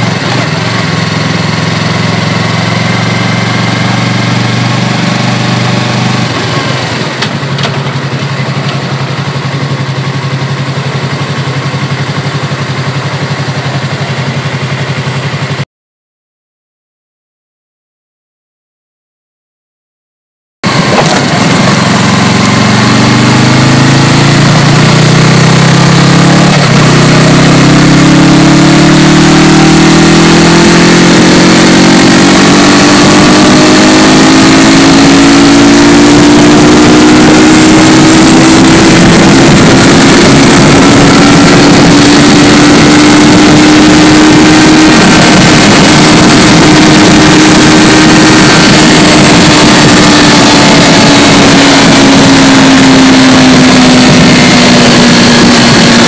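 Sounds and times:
motorcycle engine droning: 0:00.0 - 0:15.6, 0:20.6 - 0:56.0
wind rush over microphone: 0:36.1 - 0:56.0.

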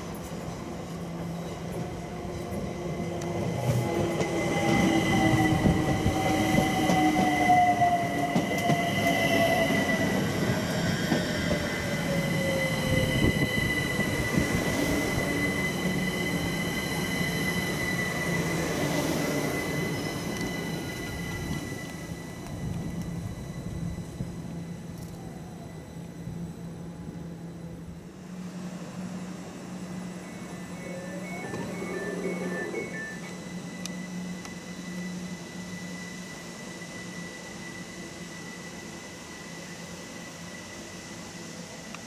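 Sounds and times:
train rumble: 0:00.0 - 0:42.0
electric train motors whining: 0:03.1 - 0:42.0
high brake squeal: 0:11.8 - 0:22.4, 0:30.2 - 0:40.7.

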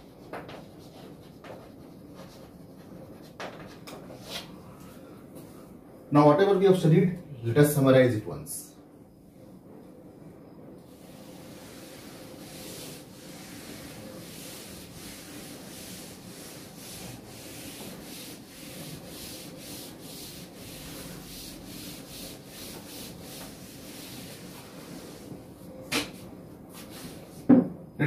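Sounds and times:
duster rubbing chalkboard: 0:10.9 - 0:27.6.

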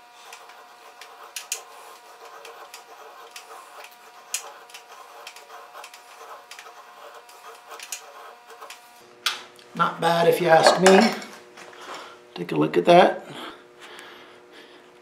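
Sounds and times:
knife scraping wood: 0:00.0 - 0:09.0.

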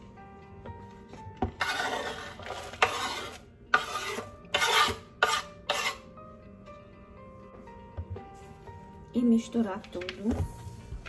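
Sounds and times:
knife scraping cutting board: 0:01.4 - 0:06.0.

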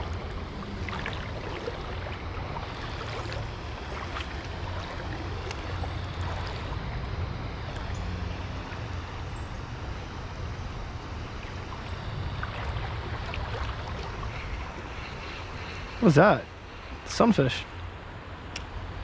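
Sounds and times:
swollen creek rushing: 0:00.0 - 0:09.2, 0:11.5 - 0:17.5.

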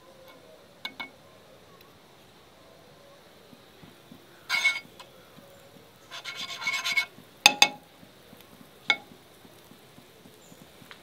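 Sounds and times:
knife scraping butter across pan: 0:04.5 - 0:04.9, 0:06.0 - 0:07.2.

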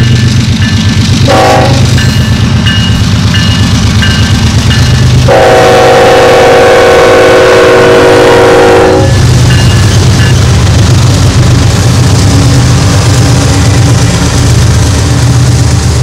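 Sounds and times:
diesel locomotive drone: 0:00.0 - 0:16.0
train wheels rolling: 0:00.0 - 0:16.0
train air horn: 0:01.3 - 0:01.9, 0:05.3 - 0:09.2.

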